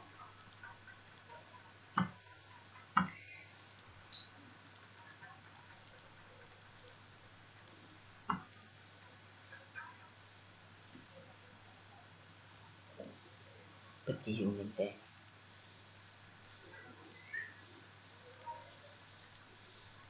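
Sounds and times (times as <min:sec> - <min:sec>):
faint low hum: 0:00.0 - 0:20.0
computer mouse clicking: 0:03.0 - 0:07.0.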